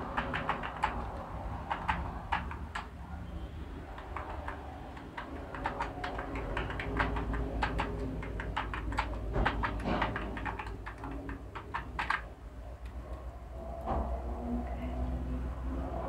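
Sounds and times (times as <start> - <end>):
computer keyboard typing: 0.0 - 3.2, 3.8 - 13.3
low steady hum: 4.6 - 16.0.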